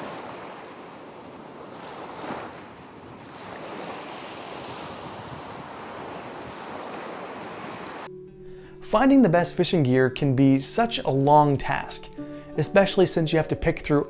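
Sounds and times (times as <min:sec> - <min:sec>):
ocean waves washing in: 0:00.0 - 0:08.1.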